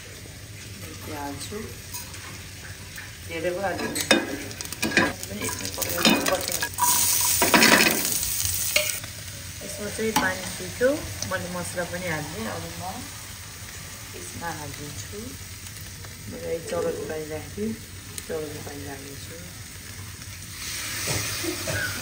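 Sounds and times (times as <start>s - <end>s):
low frying sound: 0.0s - 22.0s
seeds crackling in hot oil: 0.0s - 22.0s
metal ladle stirring in pot: 3.8s - 8.1s.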